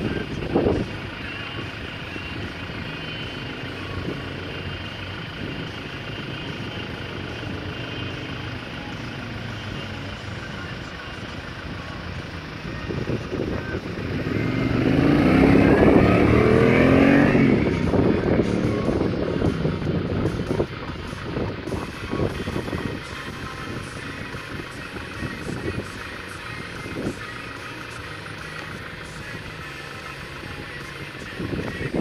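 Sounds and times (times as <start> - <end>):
motorcycle engine passing: 11.9 - 21.2.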